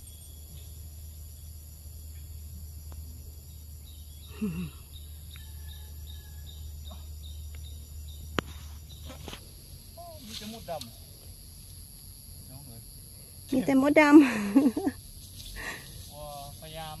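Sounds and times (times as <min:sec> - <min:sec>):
faint high chirp: 0:00.0 - 0:00.8.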